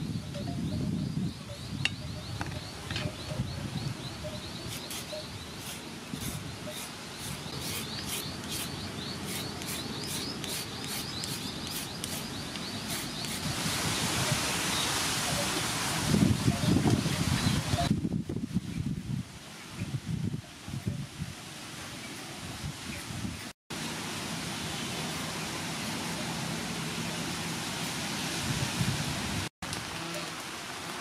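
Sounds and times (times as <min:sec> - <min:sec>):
peeler scraping carrot: 0:04.7 - 0:13.4.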